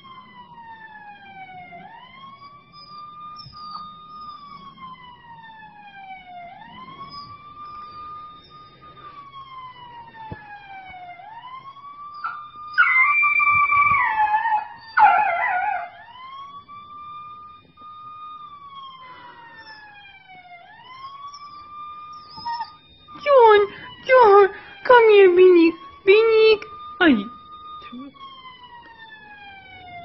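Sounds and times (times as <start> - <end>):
siren wailing: 0.0 - 30.0
puppy howling: 12.2 - 16.0, 22.3 - 22.8.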